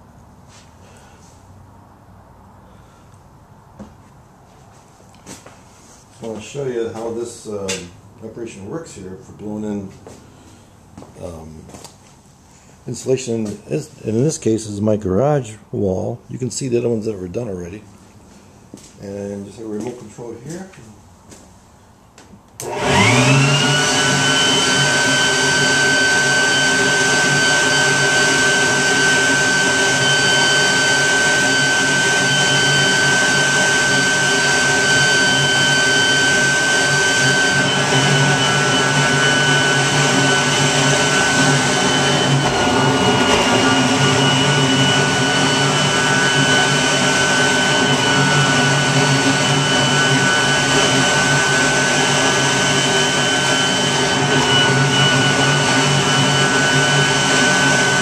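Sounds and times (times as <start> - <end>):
leaf blower whining: 22.6 - 58.0.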